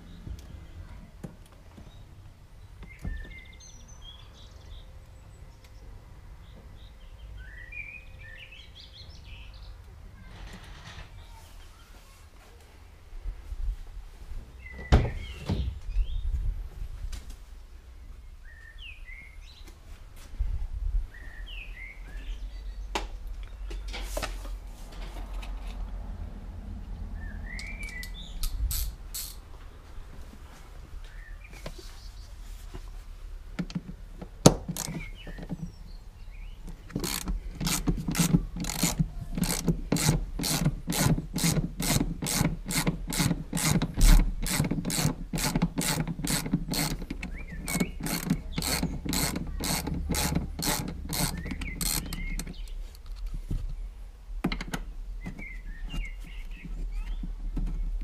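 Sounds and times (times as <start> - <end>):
ratchet wrench clicking: 28.4 - 29.4, 34.7 - 35.0, 36.9 - 52.6.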